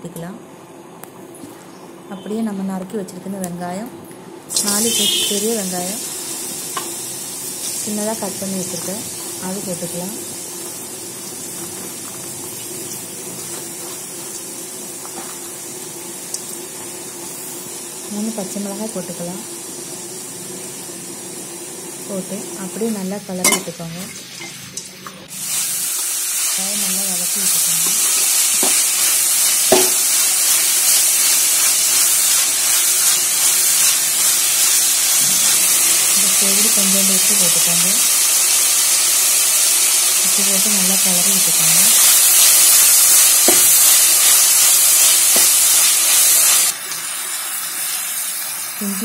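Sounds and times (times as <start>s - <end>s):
onions sizzling in oil: 4.5s - 49.0s
spatula knocking metal pan: 29.7s - 30.0s.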